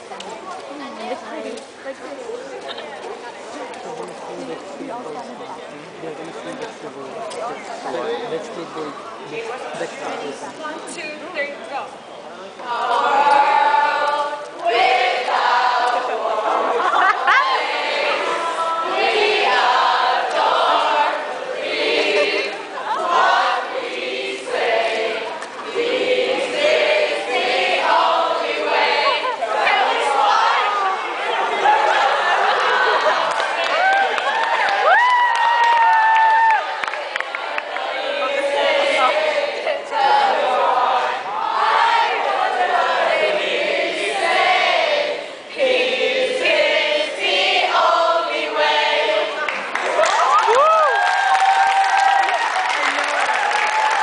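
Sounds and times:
group singing in unison: 0:12.6 - 0:33.6, 0:36.8 - 0:49.8.

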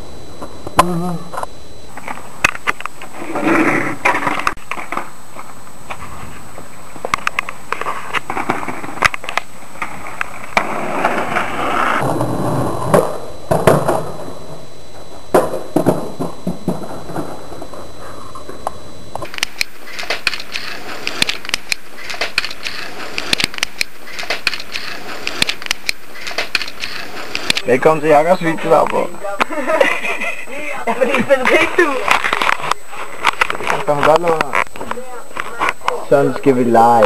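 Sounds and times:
skateboard wheels rolling on asphalt: 0:03.0 - 0:14.6.

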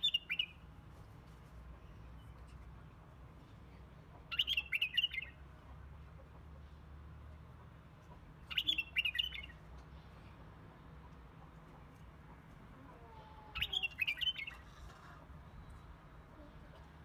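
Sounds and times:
bird chirping: 0:00.0 - 0:00.6, 0:04.2 - 0:05.4, 0:08.4 - 0:09.6, 0:13.5 - 0:14.7.

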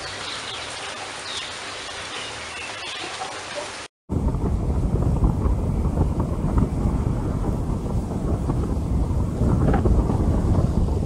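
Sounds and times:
wind buffeting microphone: 0:04.1 - 0:11.0.

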